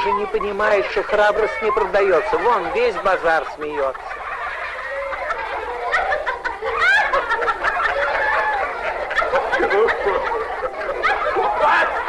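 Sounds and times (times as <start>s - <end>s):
crowd laughing and cackling: 0.0s - 12.0s.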